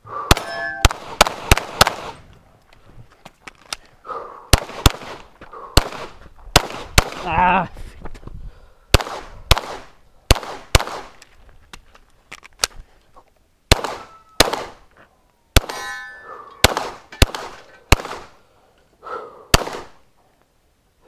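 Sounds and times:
rapid pistol shots: 0:00.3 - 0:02.2, 0:04.5 - 0:07.3, 0:08.9 - 0:11.2, 0:13.7 - 0:14.8, 0:16.6 - 0:18.4, 0:19.5 - 0:20.0
metallic ring of steel target: 0:00.4 - 0:00.9, 0:15.6 - 0:16.6.

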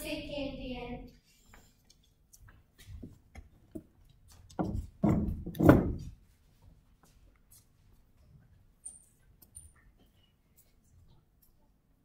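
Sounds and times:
footsteps on wooden floor: 0:02.5 - 0:07.8.

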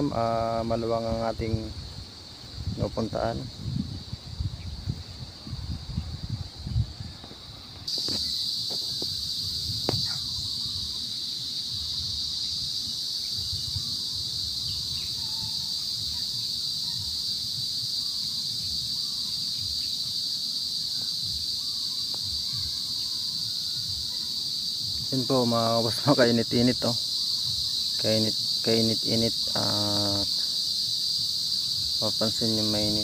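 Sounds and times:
insects droning: 0:00.0 - 0:33.0
low rumble of wind: 0:01.2 - 0:07.9.

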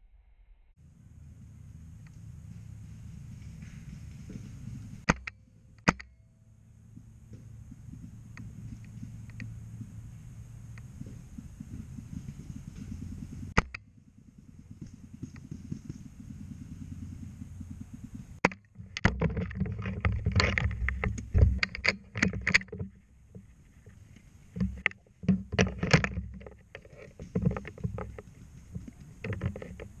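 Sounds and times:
low rumbling handling noise: 0:00.8 - 0:30.0.

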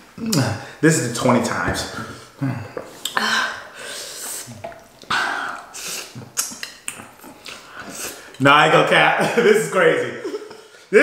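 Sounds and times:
person slurping noodles: 0:03.8 - 0:08.4
mouth noises and clicks: 0:04.2 - 0:08.4.

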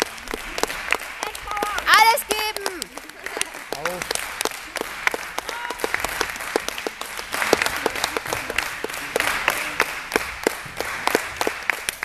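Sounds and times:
spectators clapping: 0:00.0 - 0:12.0.

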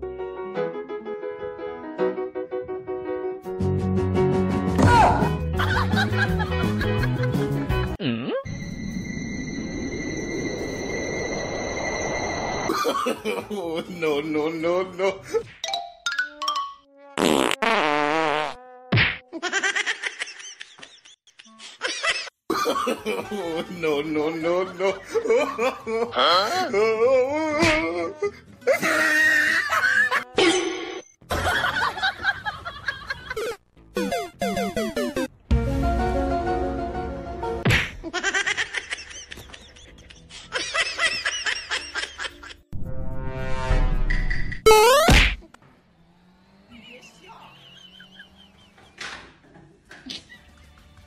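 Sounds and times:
comic background music: 0:03.6 - 0:11.8, 0:33.3 - 0:37.9, 0:39.4 - 0:45.4
rising sweep: 0:08.5 - 0:12.9
sharp cartoon hit: 0:44.7 - 0:45.5.

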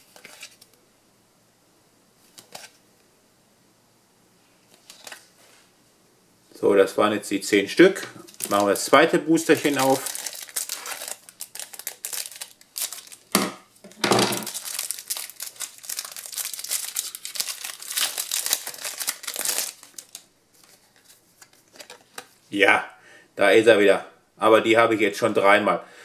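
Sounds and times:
foil wrapper crinkling: 0:08.2 - 0:13.4, 0:14.3 - 0:22.4.

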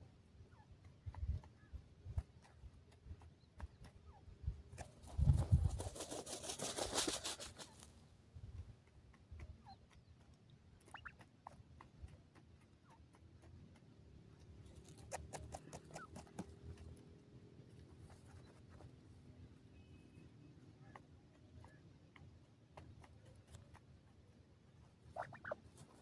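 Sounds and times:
soft scratches and pecks in dirt: 0:00.0 - 0:26.0
birds rustling and flapping: 0:04.7 - 0:08.0.

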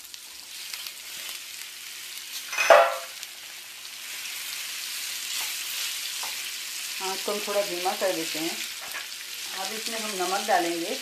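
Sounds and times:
food sizzling in oil: 0:00.0 - 0:11.0
short metallic clank: 0:02.5 - 0:03.1.

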